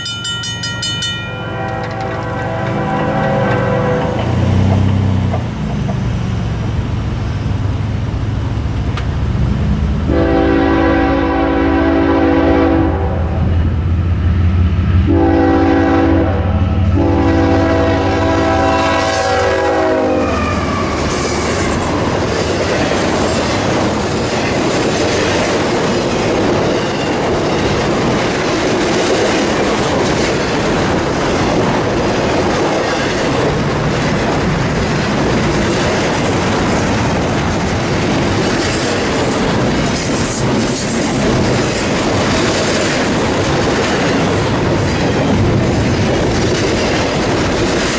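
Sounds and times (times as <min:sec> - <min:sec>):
train wheels clattering on rails: 0:00.0 - 0:07.1, 0:16.8 - 0:47.9
locomotive engine rumble: 0:00.6 - 0:47.9
locomotive air horn: 0:01.3 - 0:04.4, 0:10.1 - 0:13.5, 0:15.1 - 0:21.9.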